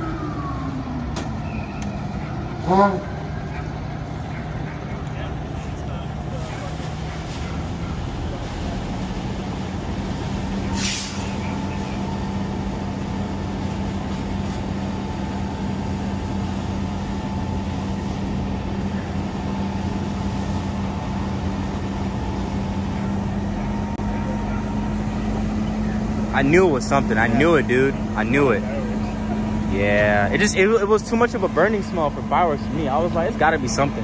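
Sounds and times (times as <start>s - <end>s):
fire engine pump droning: 0.0s - 34.0s
water spraying from hose: 5.4s - 34.0s
short sharp hiss: 10.7s - 11.4s.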